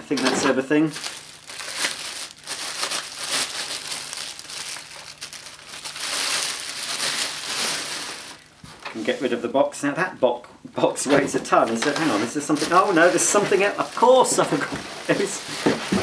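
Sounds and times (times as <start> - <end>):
plastic bag crinkling: 0.9 - 8.6, 11.9 - 16.0.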